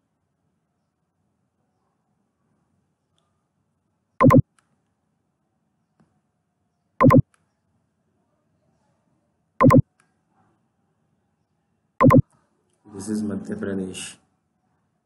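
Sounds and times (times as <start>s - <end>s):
computer mouse double clicks: 7.0s - 7.2s, 9.6s - 9.8s, 12.0s - 12.2s.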